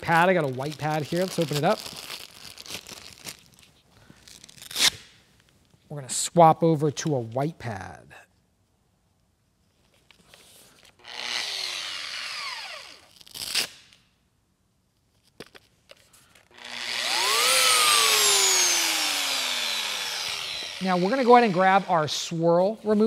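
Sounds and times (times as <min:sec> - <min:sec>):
handheld polisher motor: 0:11.0 - 0:13.1, 0:16.5 - 0:22.4.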